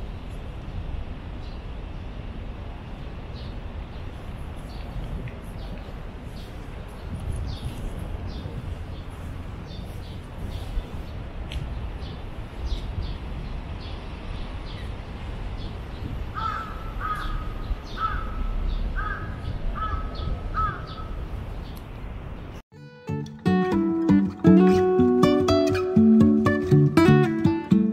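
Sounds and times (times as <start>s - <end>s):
crow cawing: 16.4s - 21.1s.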